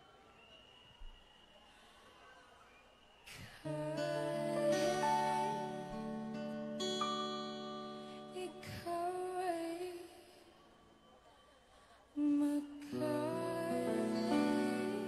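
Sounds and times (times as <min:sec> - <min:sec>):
woman singing: 0:03.4 - 0:06.4, 0:08.2 - 0:10.6, 0:12.1 - 0:15.0
acoustic guitars: 0:03.6 - 0:09.2, 0:12.9 - 0:15.0.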